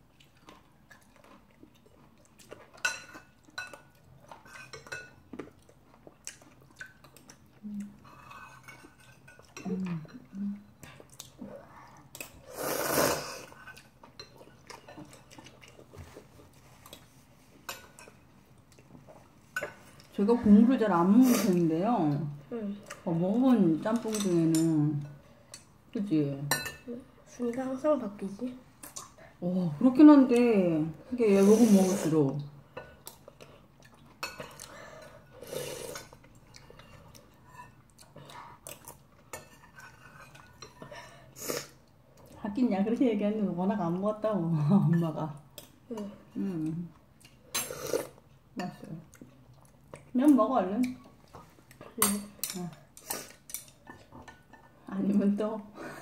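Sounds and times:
person slurping noodles: 0:12.5 - 0:13.6, 0:47.6 - 0:48.2.

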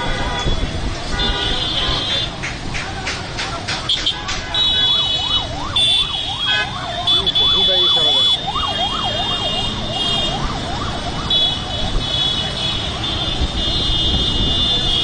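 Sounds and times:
electronic siren wailing: 0:05.2 - 0:11.7.

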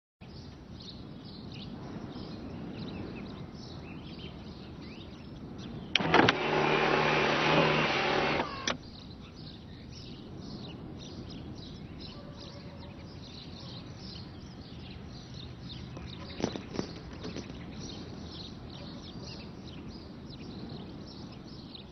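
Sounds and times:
birdsong: 0:00.2 - 0:21.9
electric sunroof motor running: 0:06.0 - 0:08.8.

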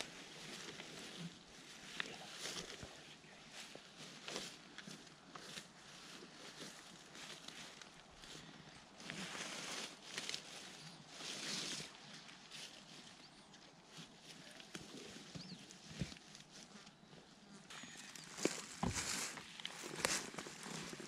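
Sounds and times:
rustling in dry leaves: 0:00.0 - 0:21.0
faint bird chirps: 0:14.4 - 0:15.8
camp chair being opened: 0:17.7 - 0:21.0.

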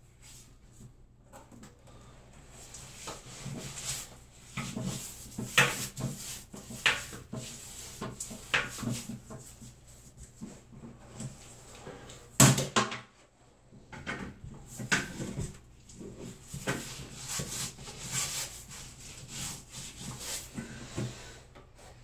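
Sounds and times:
rubbing rustling noise: 0:02.4 - 0:12.1, 0:14.6 - 0:20.6.

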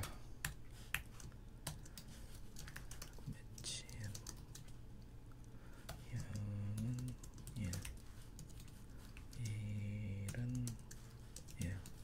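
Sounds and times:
typing on computer keyboard: 0:00.0 - 0:04.8, 0:05.9 - 0:12.0
low wordless voice: 0:09.3 - 0:10.8.

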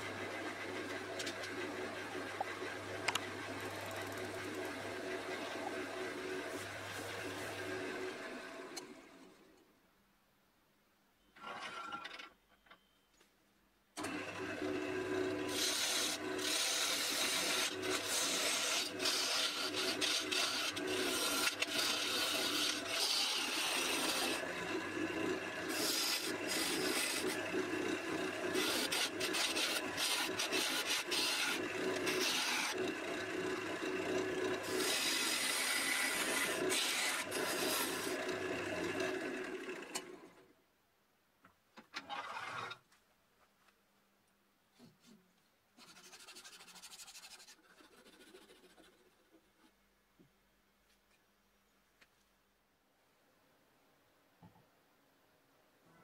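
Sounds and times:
lathe humming: 0:14.0 - 0:40.3.

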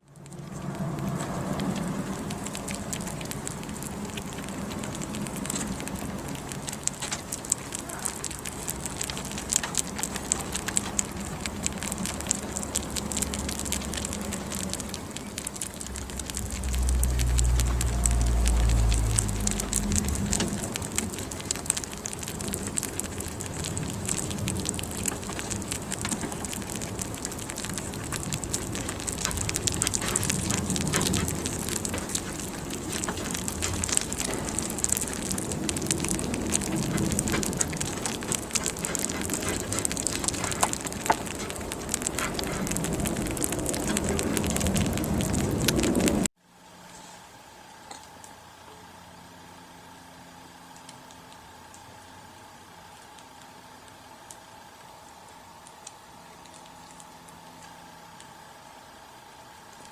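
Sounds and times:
low rumble: 0:00.0 - 0:46.3
rabbits nibbling banana: 0:00.0 - 0:46.3, 0:47.8 - 0:59.9.

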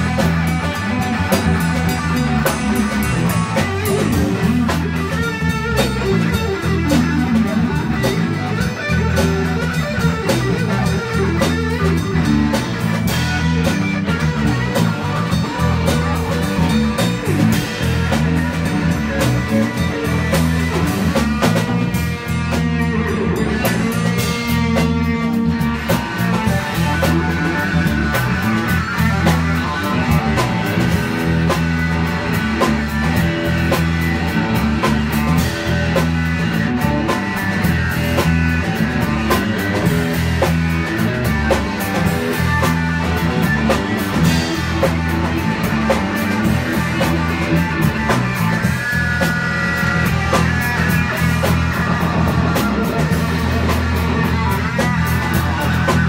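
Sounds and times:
drum kit: 0:00.0 - 0:56.0
electric bass: 0:00.0 - 0:56.0
electric guitar: 0:00.0 - 0:56.0.

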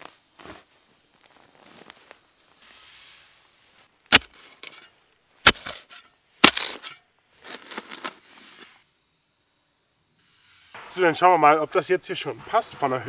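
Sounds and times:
spade scraping earth: 0:02.6 - 0:08.8
spade stabbing into soil: 0:04.1 - 0:08.7.

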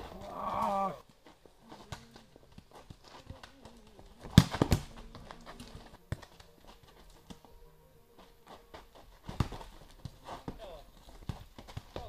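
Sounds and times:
footsteps on packed dirt: 0:00.0 - 0:12.0
football kicked thud: 0:04.2 - 0:05.0.

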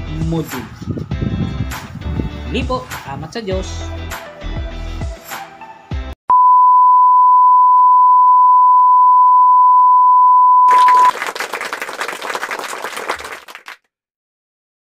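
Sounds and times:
steady electronic beep: 0:06.3 - 0:11.1.

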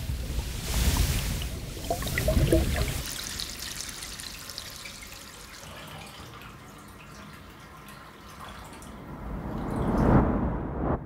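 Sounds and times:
water running from bath tap: 0:01.5 - 0:08.9
water dripping into tub: 0:01.5 - 0:10.0
low rumble: 0:09.0 - 0:11.0.

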